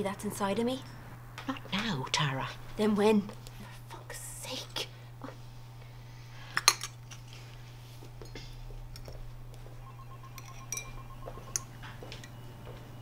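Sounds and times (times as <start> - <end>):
china cups clinking: 9.8 - 12.4.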